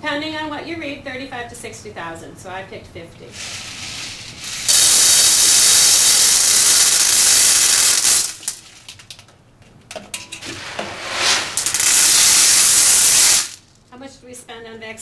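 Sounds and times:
pellets pouring into metal pan: 0:03.4 - 0:09.0, 0:10.4 - 0:13.6.

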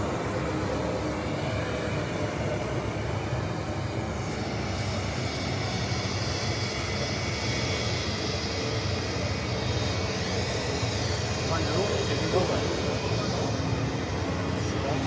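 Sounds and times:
jet engines taxiing: 0:00.0 - 0:15.0.

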